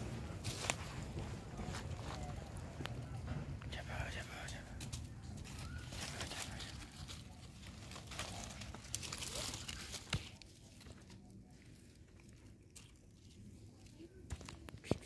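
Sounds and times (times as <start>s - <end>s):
leaves rustling and crackling: 0.0s - 3.0s, 4.8s - 15.0s.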